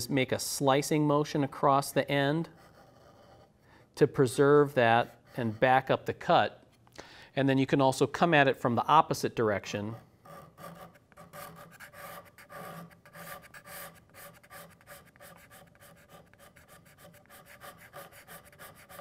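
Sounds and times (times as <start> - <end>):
card scraper scraping wood: 10.3 - 19.0.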